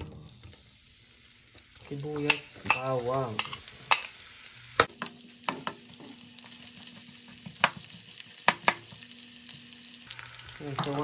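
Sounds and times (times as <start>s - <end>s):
onions sizzling in oil: 0.0s - 11.0s.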